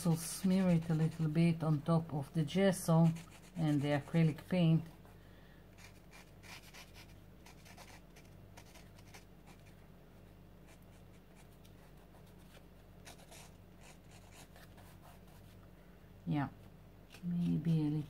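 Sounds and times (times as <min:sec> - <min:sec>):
marker scratching on paper: 0:02.9 - 0:04.4, 0:05.8 - 0:09.7, 0:11.8 - 0:15.6.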